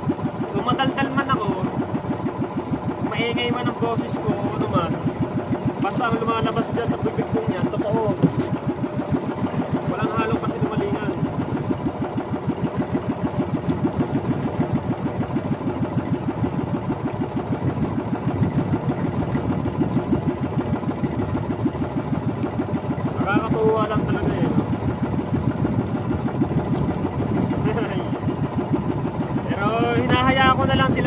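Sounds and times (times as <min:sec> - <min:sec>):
boat engine puttering: 0:00.0 - 0:31.0.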